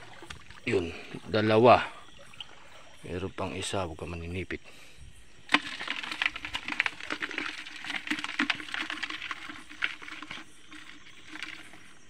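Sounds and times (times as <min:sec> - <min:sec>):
wet clicking in shallow water: 0:00.0 - 0:00.7.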